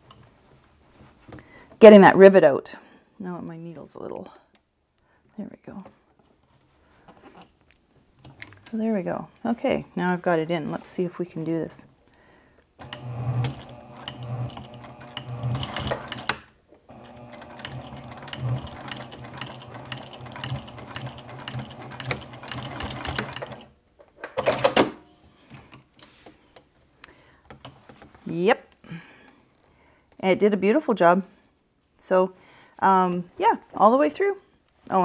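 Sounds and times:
sewing machine stitching: 12.8 - 23.7.

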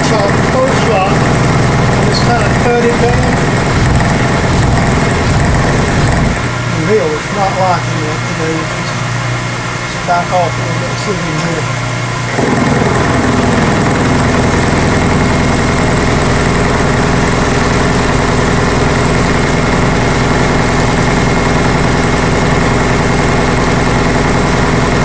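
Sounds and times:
milling cutter grinding steel: 0.0 - 9.2.

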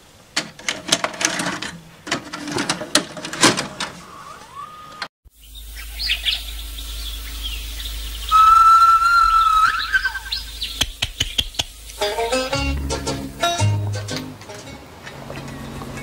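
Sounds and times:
long whistled bird note: 4.1 - 10.8
high bird chirps: 4.1 - 11.8
sharp bird clicks: 5.8 - 12.0.

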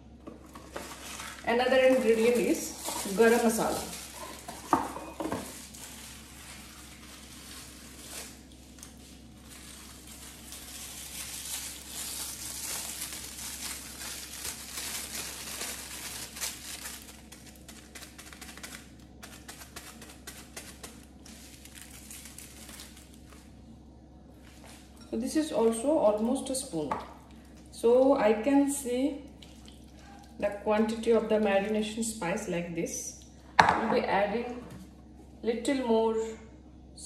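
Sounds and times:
plastic packet crinkling: 0.5 - 23.6.

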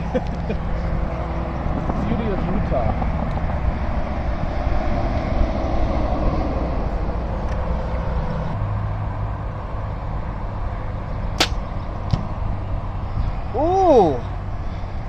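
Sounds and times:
bow string snapping on release: 11.4 - 12.2.

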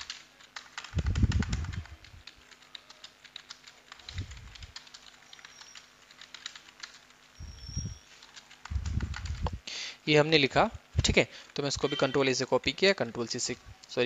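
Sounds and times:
keyboard typing clicks: 0.0 - 7.2, 8.2 - 9.6.

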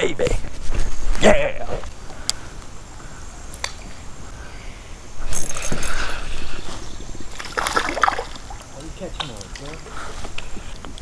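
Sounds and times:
fishing reel handling noise: 5.3 - 6.3.

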